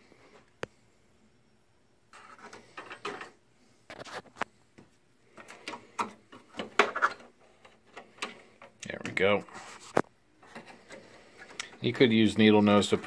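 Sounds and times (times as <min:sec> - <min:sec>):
small parts clicking and scraping: 0:02.1 - 0:04.5, 0:05.3 - 0:12.0.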